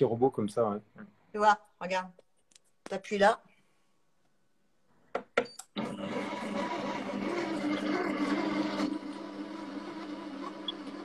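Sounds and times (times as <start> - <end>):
kitchen robot motor humming: 5.7 - 11.0.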